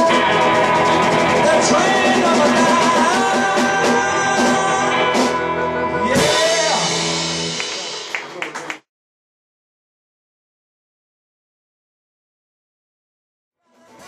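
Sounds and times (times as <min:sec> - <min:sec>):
electric guitar: 0:00.0 - 0:08.7
drum kit: 0:00.0 - 0:08.9, 0:13.7 - 0:14.0.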